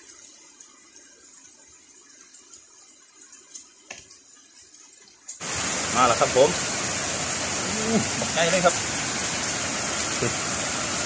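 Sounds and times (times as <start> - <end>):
heavy rain falling: 3.1 - 11.0.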